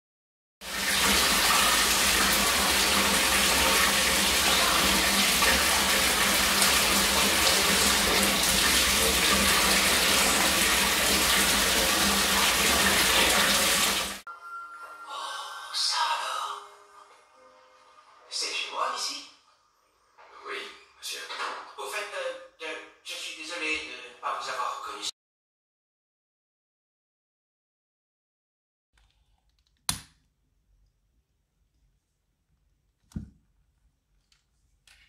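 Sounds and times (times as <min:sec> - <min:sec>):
shower water pouring into bathtub: 0:00.6 - 0:14.2.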